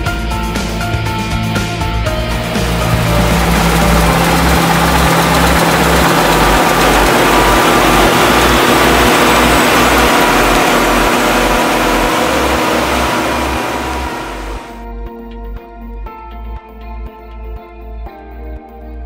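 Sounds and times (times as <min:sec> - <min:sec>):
low beat background music: 0:01.4 - 0:19.0
combine harvester running: 0:02.1 - 0:14.8.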